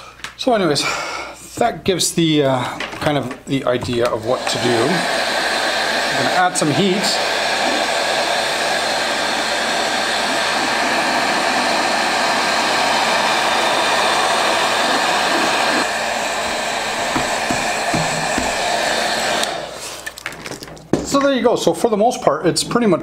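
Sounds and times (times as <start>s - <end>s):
heat gun blowing: 3.9s - 20.2s
soft knocks: 17.0s - 18.7s.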